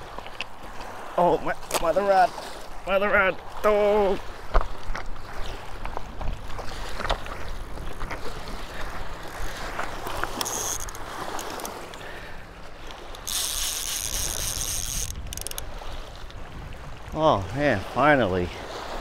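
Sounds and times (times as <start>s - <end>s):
waves lapping: 0.0s - 19.0s
footsteps on rocks: 4.4s - 10.4s
fishing reel drag buzzing: 8.4s - 16.1s.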